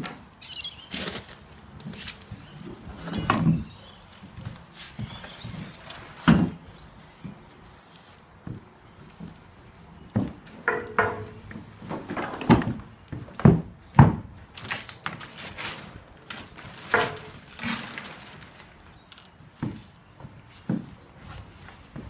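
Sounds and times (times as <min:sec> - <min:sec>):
footsteps on timber deck: 0:01.0 - 0:15.2, 0:18.6 - 0:22.0.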